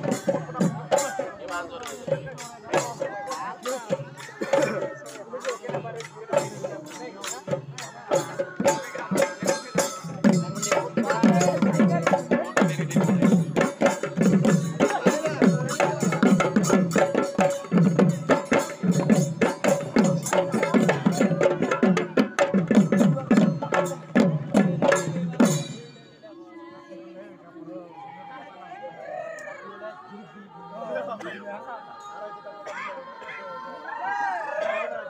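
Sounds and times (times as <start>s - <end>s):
dhol drums beating fast: 0.0s - 26.1s.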